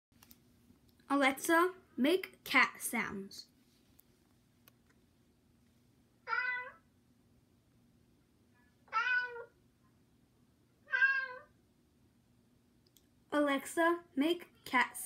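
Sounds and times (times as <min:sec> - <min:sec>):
recorded cat meows from smart speaker: 0:06.2 - 0:06.9, 0:08.8 - 0:09.6, 0:10.8 - 0:11.6.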